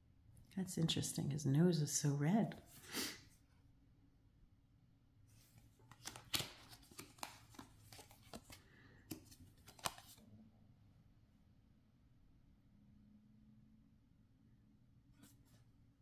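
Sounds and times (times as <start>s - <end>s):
cards clicking and sliding: 5.4s - 10.2s
card snaps: 5.9s - 10.2s.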